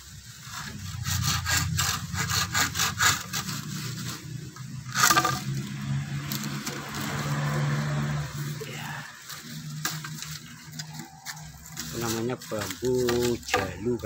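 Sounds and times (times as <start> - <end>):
saw cutting bamboo: 0.0 - 14.0
sharp crack: 0.5 - 8.0.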